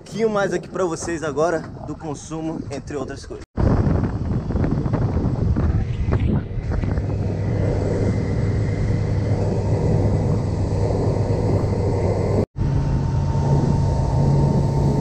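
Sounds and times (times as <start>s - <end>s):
wind and water rushing: 0.0s - 15.0s
outboard motor running: 4.0s - 15.0s.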